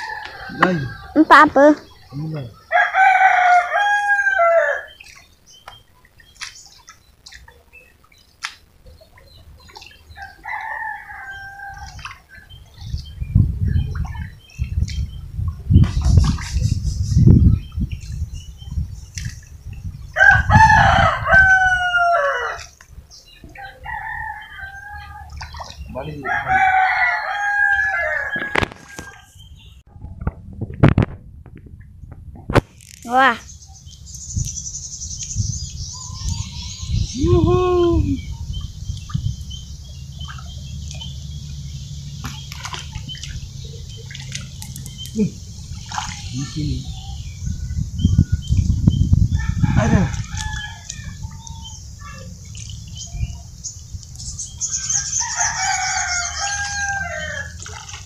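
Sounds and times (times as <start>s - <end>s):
rooster crowing: 0.0s - 1.2s, 2.7s - 5.0s, 10.2s - 12.0s, 20.2s - 22.7s, 23.6s - 25.3s, 26.2s - 29.3s, 49.3s - 51.3s, 54.7s - 57.6s
birds chirping: 0.0s - 29.9s, 33.0s - 58.0s
sharp wet smacks: 6.4s - 7.6s, 8.4s - 8.7s, 19.1s - 19.5s, 40.2s - 41.2s, 42.2s - 43.4s, 44.1s - 45.2s
hands squelching in wet mud: 11.6s - 13.0s, 25.0s - 26.0s, 40.2s - 46.6s, 49.9s - 51.6s, 52.2s - 58.0s
thuds and sloshing in wet mud: 13.8s - 16.7s, 25.4s - 26.0s, 42.2s - 46.3s, 57.5s - 58.0s.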